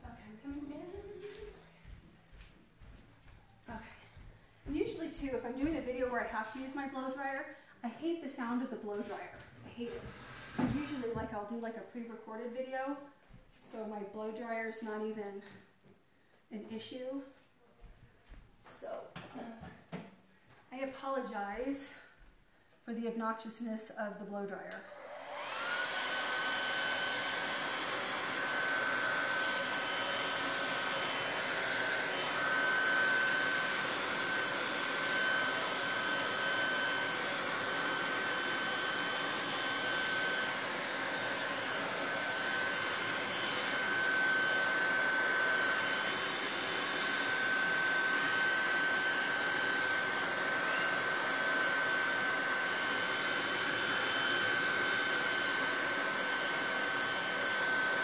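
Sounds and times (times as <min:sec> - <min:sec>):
hair dryer blowing air: 0:00.0 - 0:03.0, 0:04.2 - 0:13.0, 0:24.4 - 0:58.0.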